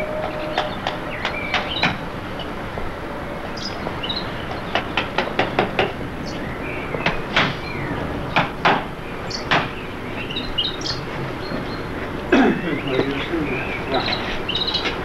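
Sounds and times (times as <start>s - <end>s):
hammer blows on wood: 7.0s - 7.6s.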